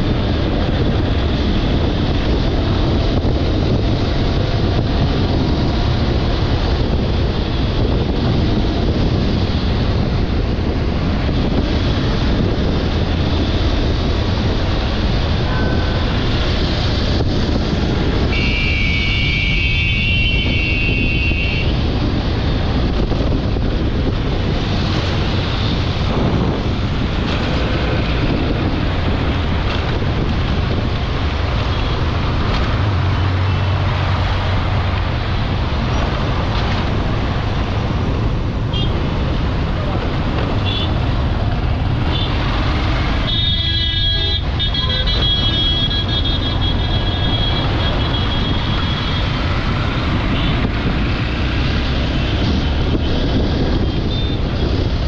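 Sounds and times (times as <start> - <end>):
wind noise on microphone: 0.0 - 55.0
horn sounding: 18.3 - 21.7, 43.2 - 48.6.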